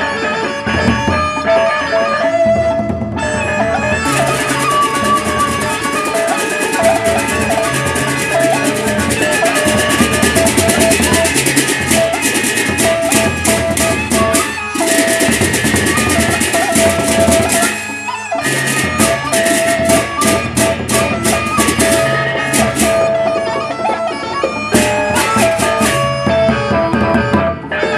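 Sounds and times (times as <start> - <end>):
high held melody: 0.0 - 27.9
large drums beaten with sticks: 2.9 - 17.8, 18.4 - 23.6
hand cymbals clashing: 4.0 - 26.2.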